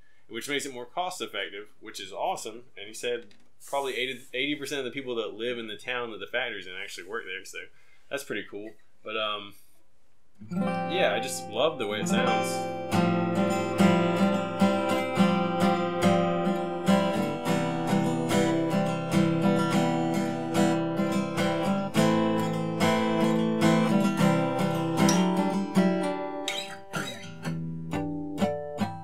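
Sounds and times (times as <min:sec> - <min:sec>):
acoustic guitar strummed chords: 0:10.4 - 0:29.0.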